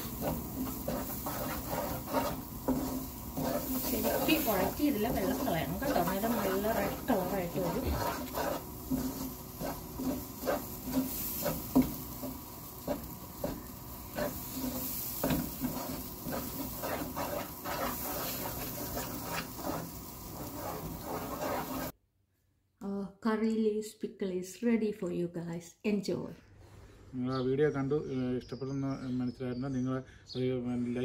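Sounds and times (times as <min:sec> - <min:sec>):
paste sizzling: 0:00.0 - 0:22.0
spatula scraping frying pan: 0:00.0 - 0:22.0.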